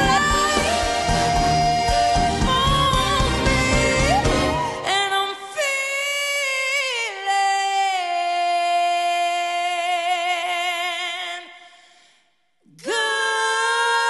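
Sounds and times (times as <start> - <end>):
backing music: 0.0 - 5.3
person singing with vibrato: 0.0 - 12.0, 12.6 - 14.0.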